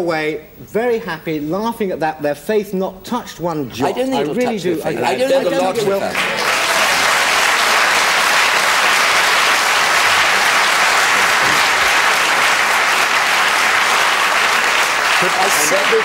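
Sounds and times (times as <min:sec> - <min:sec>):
studio audience applauding: 0:04.9 - 0:16.0.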